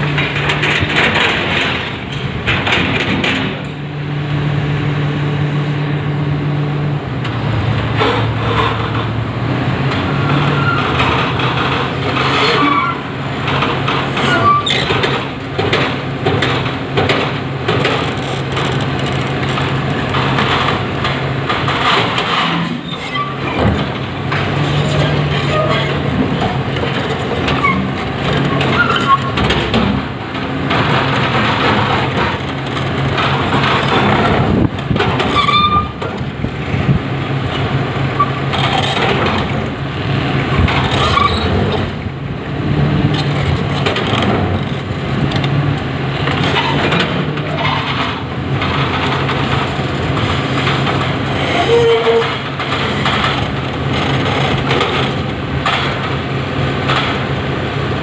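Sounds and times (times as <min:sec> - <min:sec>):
excavator diesel engine running: 0:00.0 - 0:58.0
rough scraping noise: 0:10.0 - 0:14.9, 0:21.6 - 0:29.8, 0:46.2 - 0:54.7.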